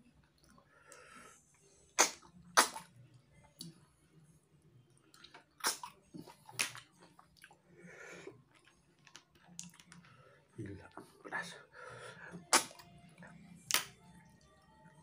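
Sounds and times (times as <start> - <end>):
person slurping snails: 5.6 - 6.8.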